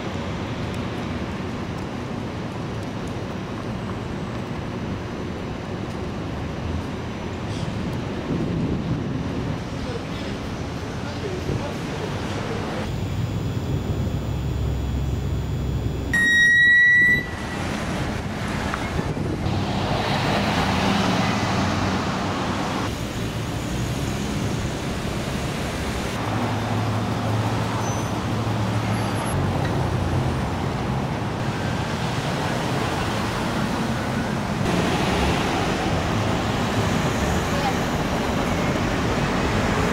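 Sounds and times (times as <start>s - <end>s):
high-pitched beep: 16.2s - 17.6s
cars passing: 17.0s - 39.9s.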